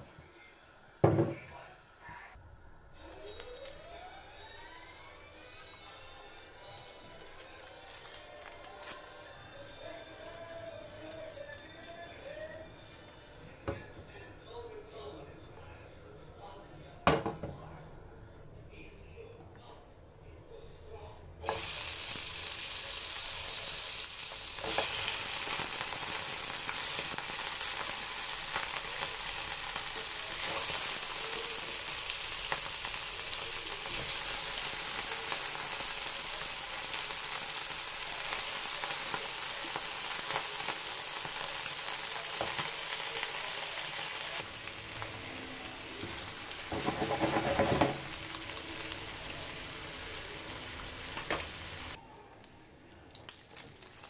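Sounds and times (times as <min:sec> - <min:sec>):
meat sizzling in hot oil: 0:21.4 - 0:52.0.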